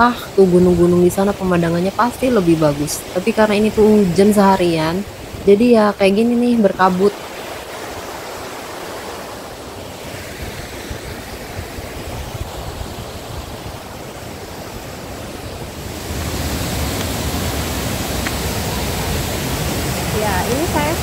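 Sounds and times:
waterfall rushing: 0:00.0 - 0:21.0
wind on microphone: 0:07.0 - 0:21.0.

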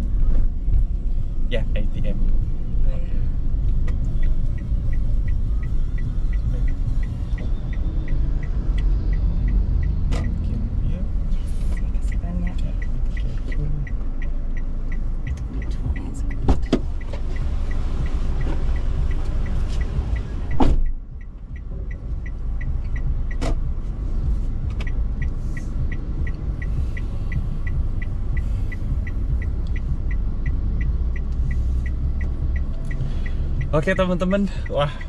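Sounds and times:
car engine idling: 0:00.0 - 0:35.0
car indicator ticking: 0:00.0 - 0:35.0
car door opening: 0:10.0 - 0:10.4, 0:16.4 - 0:17.4, 0:20.4 - 0:21.0, 0:23.3 - 0:23.7
car door thud shut: 0:20.5 - 0:20.9.

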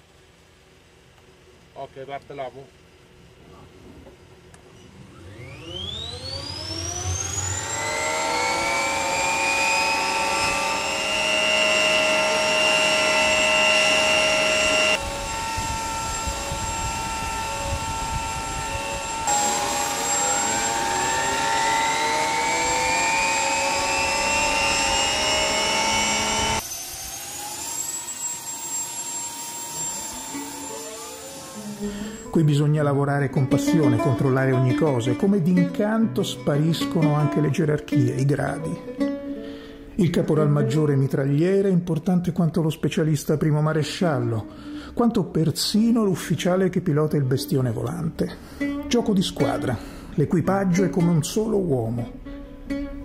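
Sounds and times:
turbine whine spooling up: 0:04.7 - 0:35.2.

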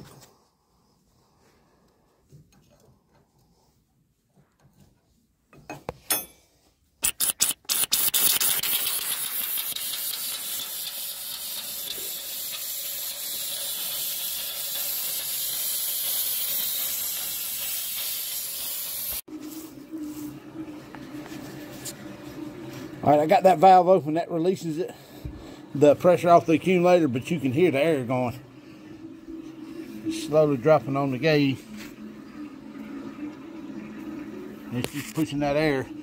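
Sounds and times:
wrench clicking: 0:07.0 - 0:12.6
pressurised gas hissing: 0:07.7 - 0:19.2.

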